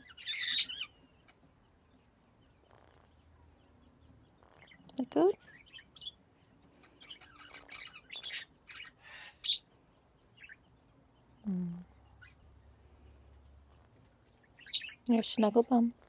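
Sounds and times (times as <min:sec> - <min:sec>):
parrot chirping and squeaking: 0:00.0 - 0:01.4, 0:02.5 - 0:03.3, 0:04.3 - 0:06.2, 0:06.8 - 0:09.7, 0:10.3 - 0:10.6, 0:13.8 - 0:15.1.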